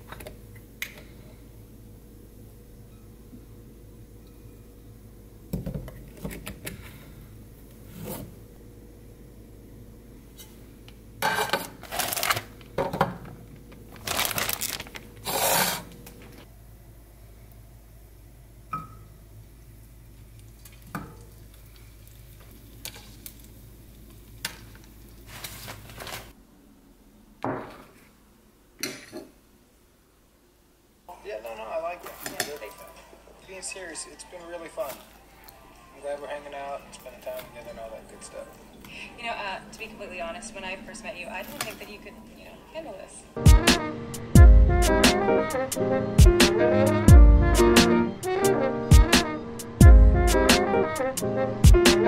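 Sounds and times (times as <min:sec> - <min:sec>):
low steady hum: 0:00.0 - 0:45.0
food frying: 0:19.9 - 0:26.3.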